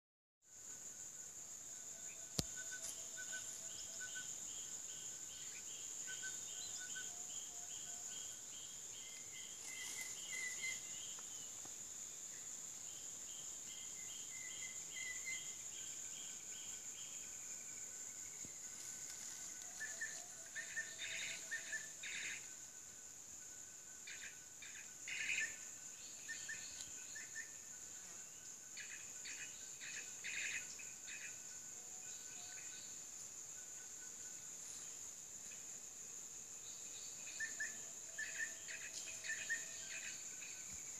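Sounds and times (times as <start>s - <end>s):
high-pitched insect drone: 0.5s - 35.8s, 36.6s - 40.9s
forest bird calls: 2.0s - 11.6s, 12.4s - 17.4s, 18.1s - 22.6s, 24.0s - 27.8s, 28.4s - 33.0s, 36.7s - 40.9s.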